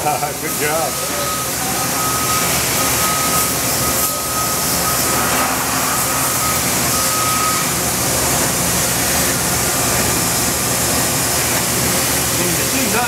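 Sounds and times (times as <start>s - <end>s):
milling machine noise: 0.0s - 13.0s
thin high steady tone: 0.6s - 8.5s
coolant spray hiss: 2.0s - 13.0s.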